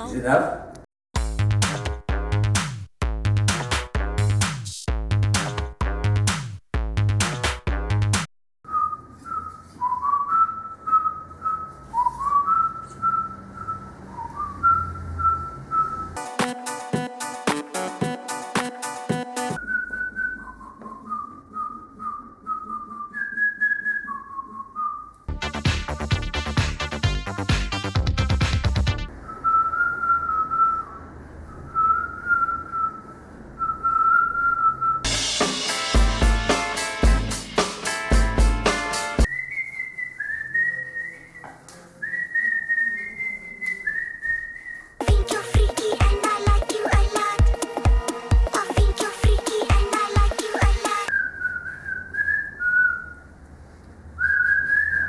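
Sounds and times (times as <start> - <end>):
electronic music with drum-machine beat: 1.2 - 8.2, 16.2 - 19.6, 25.3 - 29.1, 35.1 - 39.3, 45.0 - 51.1
person whistling a tune: 8.7 - 16.3, 19.2 - 25.2, 29.3 - 31.0, 39.2 - 53.2, 54.2 - 55.0.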